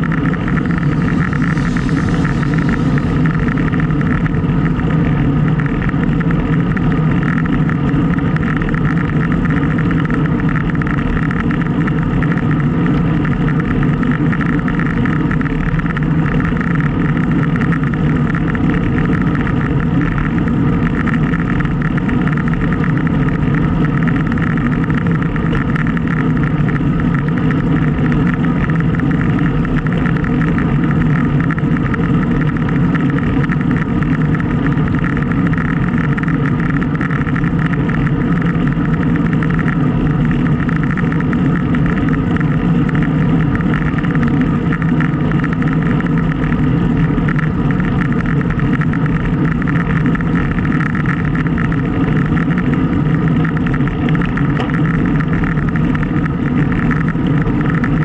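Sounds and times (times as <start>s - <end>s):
wind and road noise: 0.0s - 58.0s.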